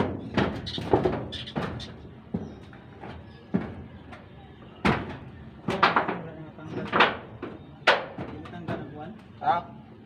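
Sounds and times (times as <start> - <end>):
dull knocks on metal roof: 0.0 - 3.9, 4.8 - 6.2.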